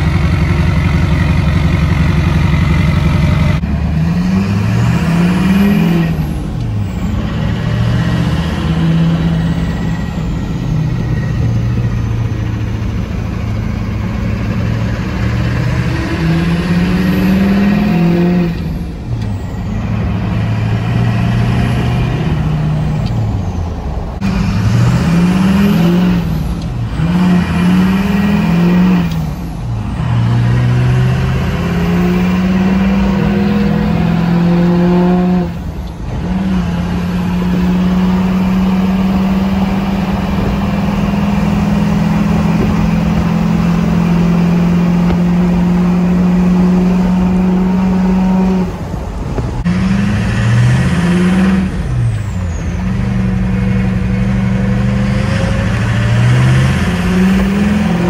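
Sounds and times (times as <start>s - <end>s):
diesel engine accelerating: 0.0s - 58.0s.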